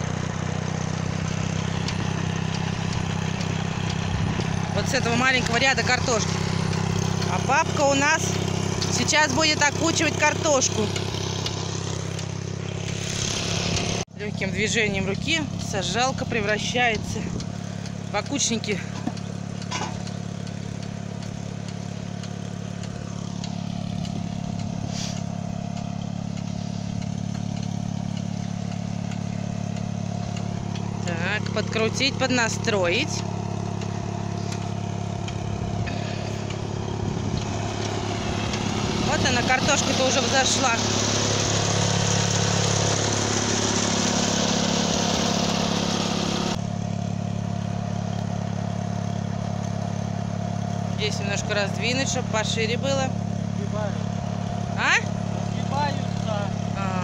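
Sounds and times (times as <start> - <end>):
tractor engine idling: 0.0 - 57.0
broad hiss: 24.9 - 25.2.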